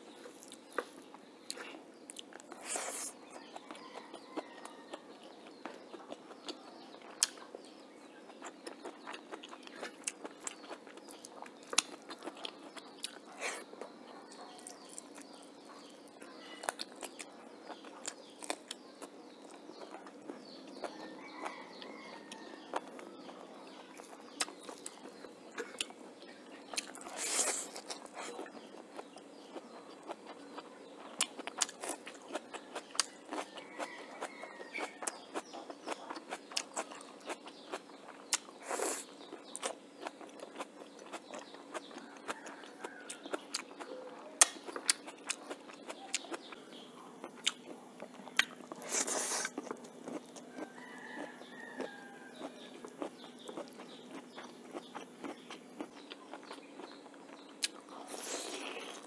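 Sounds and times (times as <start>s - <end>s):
wet chewing and mouth clicks: 0.1s - 7.7s, 8.3s - 59.0s
crunchy bites: 8.4s - 13.9s, 26.6s - 30.4s, 47.2s - 59.0s.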